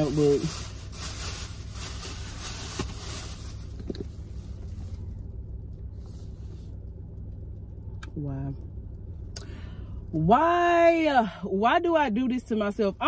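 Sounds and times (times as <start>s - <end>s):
car engine idling: 0.0s - 13.0s
paper notebook rustling: 1.6s - 4.7s.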